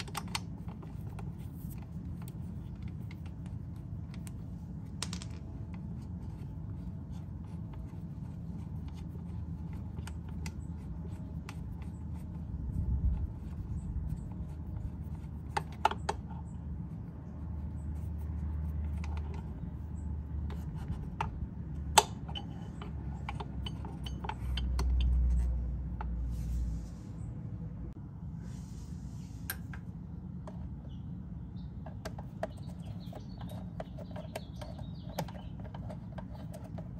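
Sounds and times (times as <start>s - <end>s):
bolts and washers clicking: 0.0s - 8.0s, 18.7s - 26.2s, 31.8s - 36.9s
low steady rumble: 0.0s - 36.9s.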